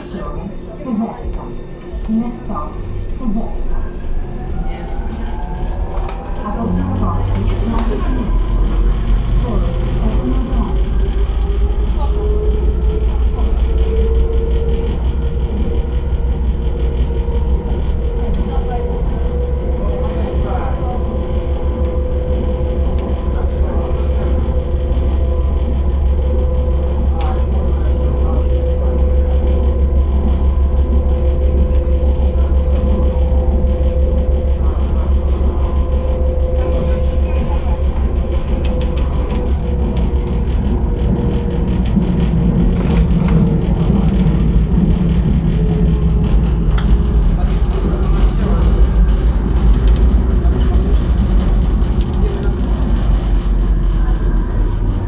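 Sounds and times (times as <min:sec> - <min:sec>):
constant whine: 0:00.0 - 0:55.0
metro train rumbling in tunnel: 0:00.0 - 0:55.0
click: 0:05.1 - 0:06.3, 0:38.6 - 0:39.4.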